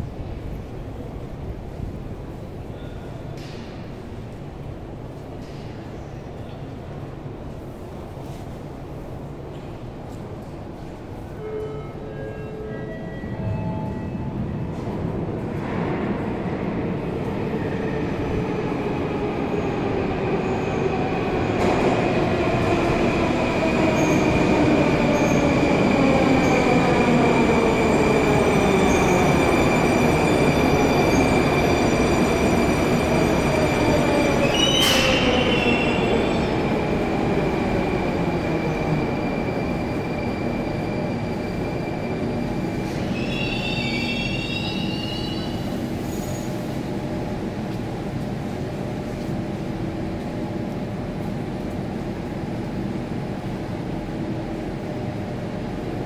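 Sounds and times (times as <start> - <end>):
metro train braking: 10.8 - 47.6
high-pitched brake squeals: 43.0 - 46.5.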